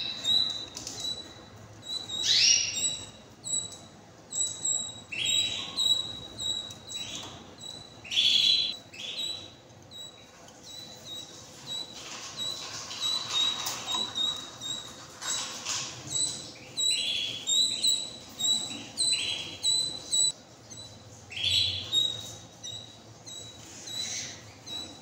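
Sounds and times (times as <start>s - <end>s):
upward-sweeping bird calls: 8.0s - 9.5s.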